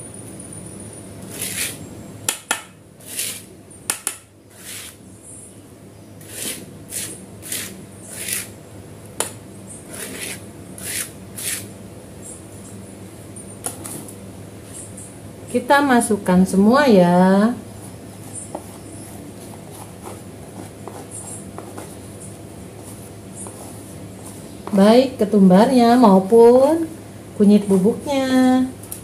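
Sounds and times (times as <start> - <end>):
spatula scraping stone mortar: 1.3 - 1.8, 3.0 - 3.5, 4.5 - 5.0, 6.2 - 8.6, 9.9 - 11.7.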